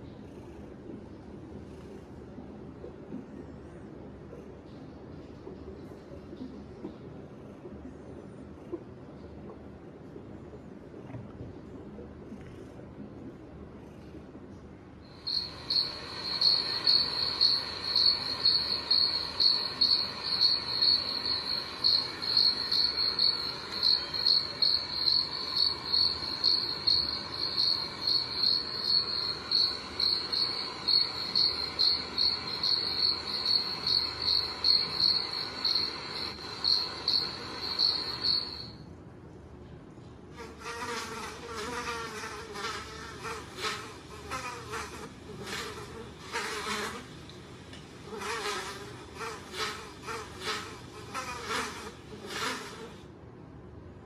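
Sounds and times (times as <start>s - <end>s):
recorded cricket chirping: 15.0s - 38.8s
buzzing insect: 15.1s - 38.8s, 40.4s - 47.1s, 48.1s - 53.0s.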